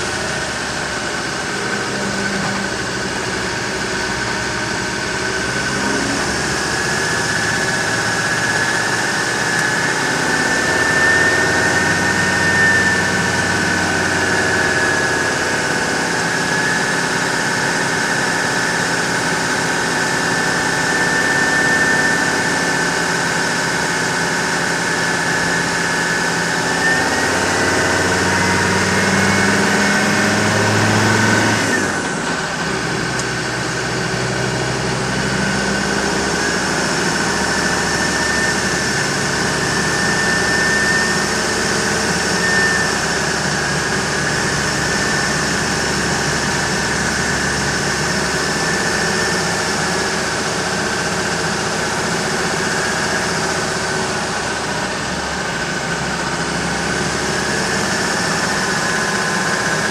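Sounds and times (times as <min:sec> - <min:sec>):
diesel engine running: 0:00.0 - 0:59.9
turbo whistle: 0:05.1 - 0:17.4, 0:20.3 - 0:24.0, 0:24.9 - 0:30.8, 0:35.3 - 0:51.6.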